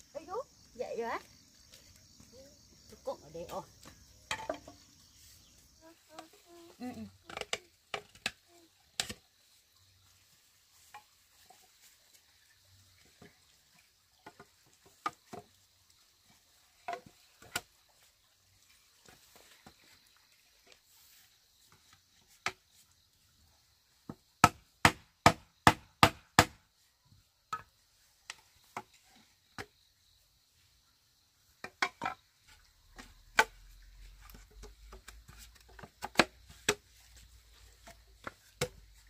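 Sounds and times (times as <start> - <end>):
hollow knocks of bamboo on bamboo: 3.8 - 4.8, 22.3 - 22.6, 24.1 - 26.6, 31.6 - 32.2, 32.9 - 33.6, 34.2 - 37.2.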